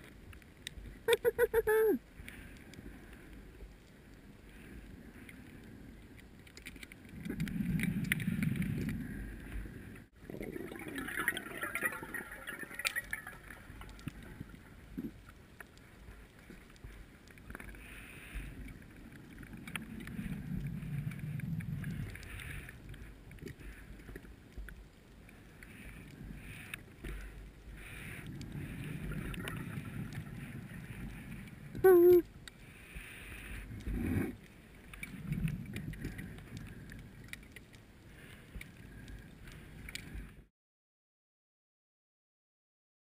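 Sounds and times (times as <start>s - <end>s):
low rushing water: 0.0s - 40.5s
muffled underwater noise: 25.5s - 34.4s.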